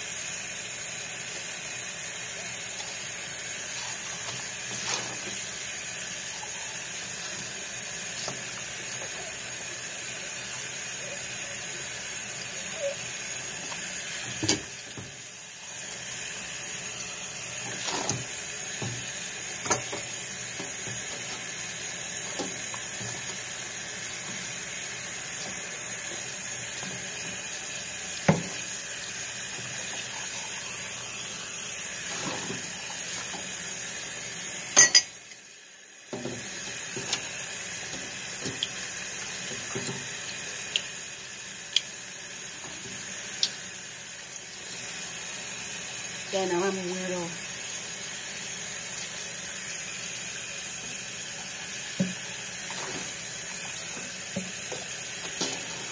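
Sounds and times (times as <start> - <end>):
tap running into sink: 13.6 - 15.2, 17.6 - 23.5, 28.2 - 28.7, 36.1 - 40.9, 51.8 - 55.9
dishes clinking: 34.8 - 35.3.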